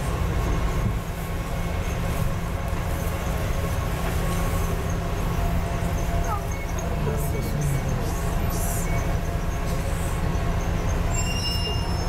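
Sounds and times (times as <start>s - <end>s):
bus engine rumble: 0.0s - 12.0s.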